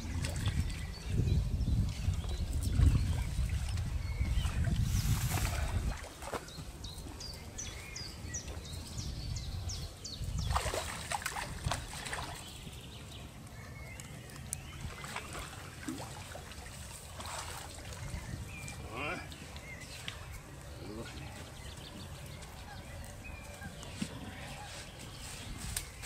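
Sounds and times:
fish thrashing and splashing: 0:10.5 - 0:12.5
bird chirping: 0:17.9 - 0:26.0.

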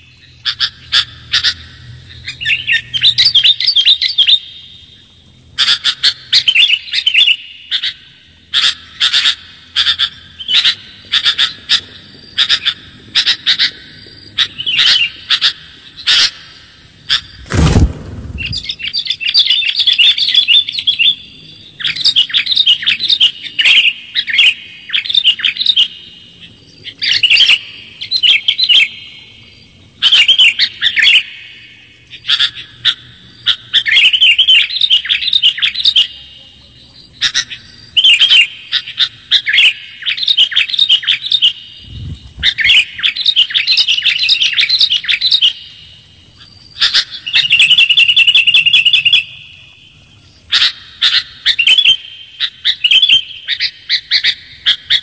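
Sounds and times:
low thump: 0:17.4 - 0:18.8.

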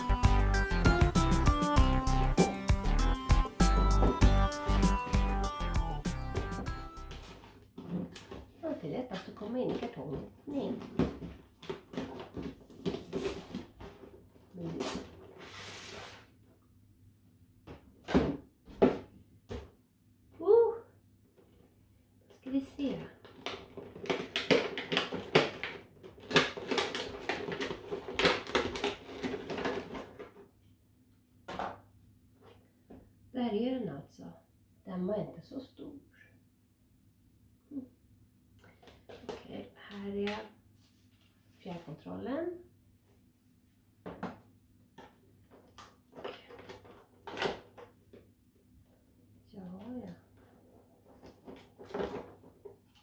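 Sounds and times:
plastic packaging crackling: 0:23.2 - 0:30.4.

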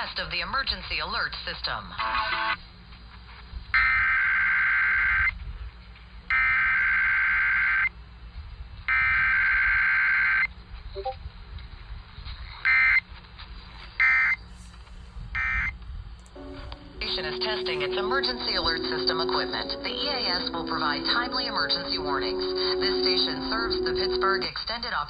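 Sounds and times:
faint radio background noise: 0:00.0 - 0:03.5, 0:16.4 - 0:25.0.

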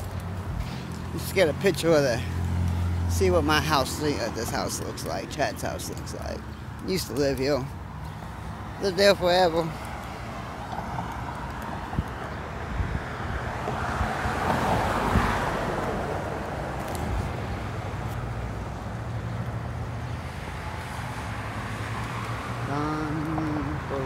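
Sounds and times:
street noise: 0:00.0 - 0:24.0
wind buffeting microphone: 0:10.3 - 0:18.0.

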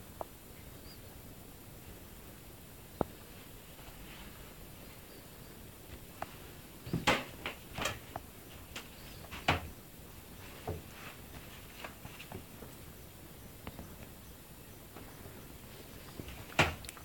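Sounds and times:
knocks and thumps in wooden cabin: 0:06.8 - 0:09.8, 0:10.5 - 0:12.8, 0:16.1 - 0:16.9.

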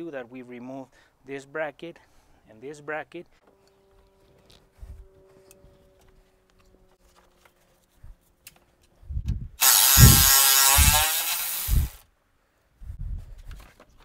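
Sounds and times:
power ratchet whirring: 0:09.6 - 0:12.0.

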